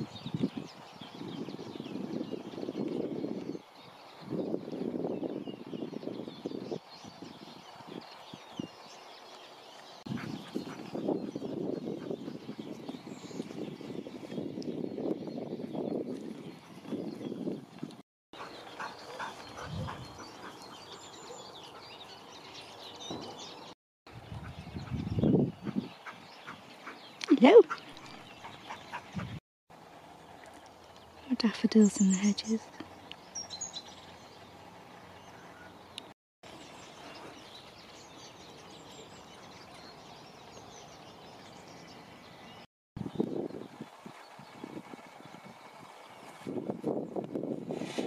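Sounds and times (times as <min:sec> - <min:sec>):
faint birdsong chirps: 0:18.4 - 0:29.4, 0:30.1 - 0:46.4.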